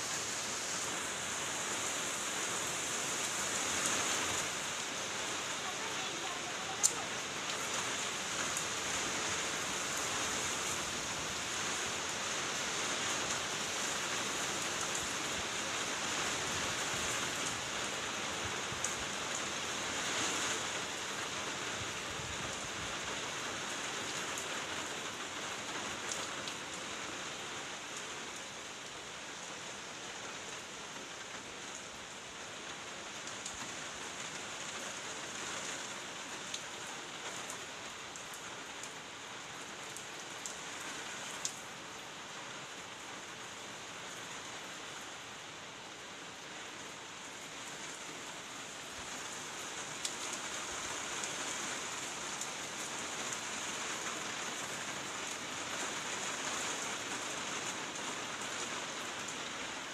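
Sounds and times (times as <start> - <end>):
heavy rain hissing: 0.0 - 59.9
raindrop ticks: 5.7 - 7.6, 41.4 - 41.6.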